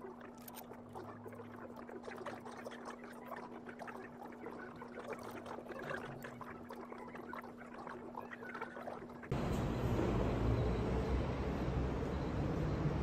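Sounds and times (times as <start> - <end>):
street traffic rumble: 9.3 - 13.0.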